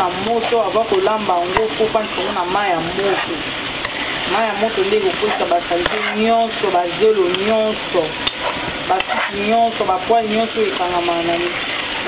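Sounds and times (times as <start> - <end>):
fish and vegetables sizzling in pan: 0.0 - 12.0
spatula scraping metal pan: 0.2 - 6.6, 8.2 - 9.6, 10.4 - 12.0.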